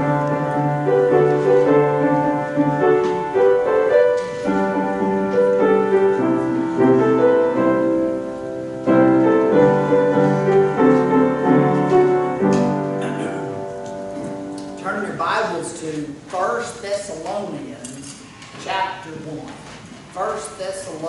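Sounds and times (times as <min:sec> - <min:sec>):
keyboard playing slow chords: 0:00.0 - 0:14.8.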